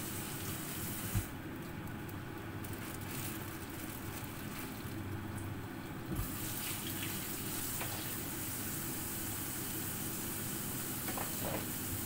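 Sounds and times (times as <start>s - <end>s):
sizzling hiss of oil: 6.2s - 12.0s.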